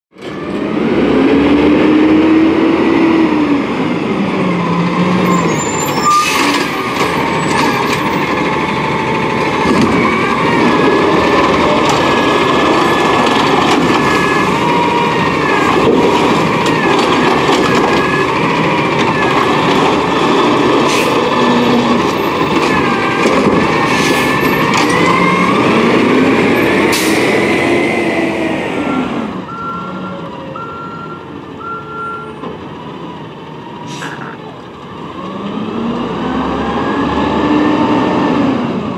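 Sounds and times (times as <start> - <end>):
truck engine revving: 0.2 - 38.9
air brake hisses: 33.9 - 34.4.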